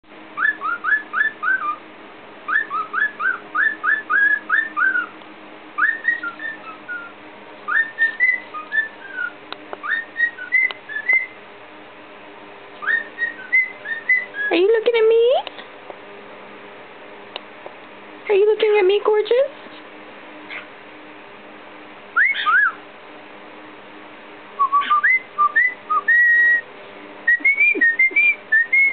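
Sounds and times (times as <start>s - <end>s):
cockatiel whistling a tune: 0.4s - 1.8s, 2.5s - 5.1s, 5.8s - 7.1s, 7.7s - 11.4s, 12.8s - 14.6s, 22.2s - 22.8s, 24.6s - 26.6s, 27.3s - 28.9s.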